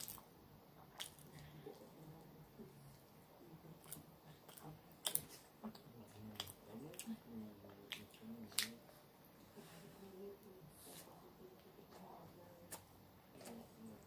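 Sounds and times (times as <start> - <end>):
person chewing soft food: 0.8 - 1.9, 3.8 - 8.8.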